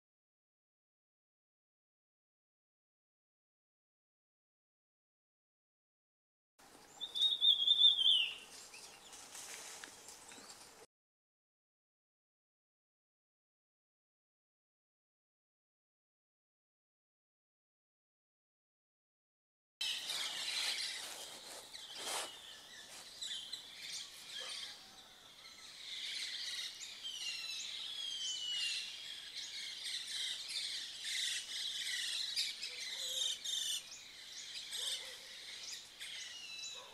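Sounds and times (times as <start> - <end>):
birds chirping and trilling: 6.6 - 10.8, 19.8 - 36.9
descending whistled bird notes: 7.0 - 8.4.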